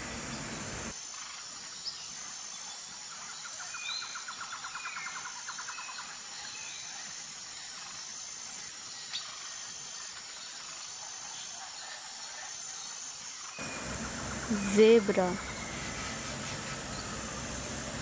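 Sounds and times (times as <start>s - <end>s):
faint insects: 0.0s - 18.0s
bird chirps: 13.6s - 17.7s
rapid bird trill: 13.6s - 18.0s.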